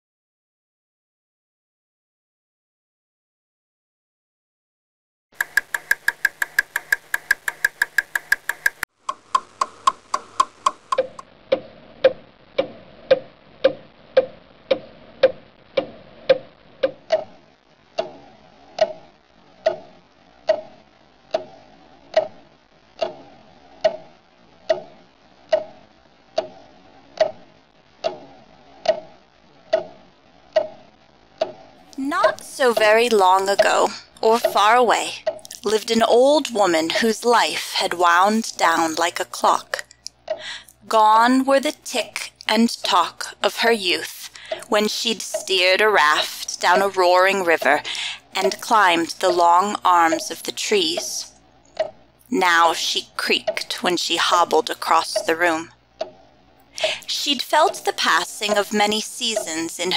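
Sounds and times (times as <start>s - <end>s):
clock ticking: 5.4s - 17.3s, 19.6s - 19.9s, 20.5s - 20.7s, 21.3s - 21.5s, 22.1s - 22.4s, 23.0s - 23.2s, 24.7s - 24.9s, 27.2s - 27.4s, 29.7s - 30.8s, 31.4s - 56.2s, 56.8s - 59.9s.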